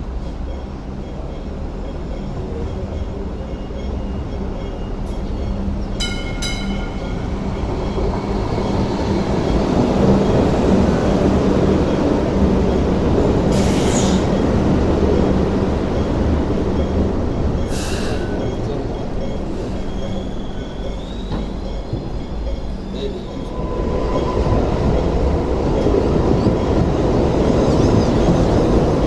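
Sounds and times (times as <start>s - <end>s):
train wheels rumbling on rails: 0.0s - 29.0s.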